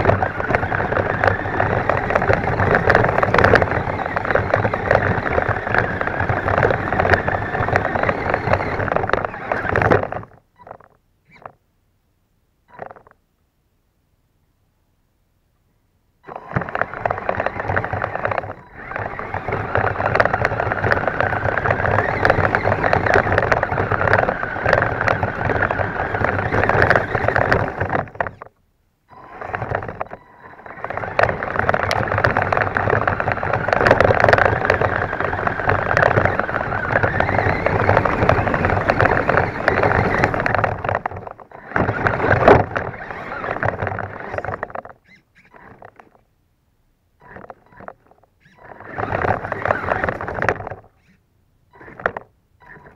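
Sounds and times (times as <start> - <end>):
toy truck motor running: 0.0 - 11.6, 16.2 - 28.5, 29.1 - 46.2, 47.2 - 52.9.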